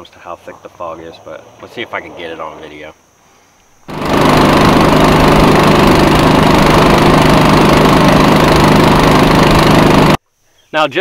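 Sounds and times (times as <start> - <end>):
outboard motor running: 3.9 - 10.2.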